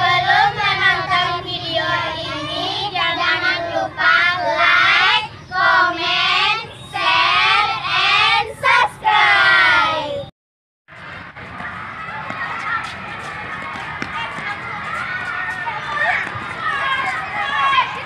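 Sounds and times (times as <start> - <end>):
girls singing in unison: 0.0 - 10.2.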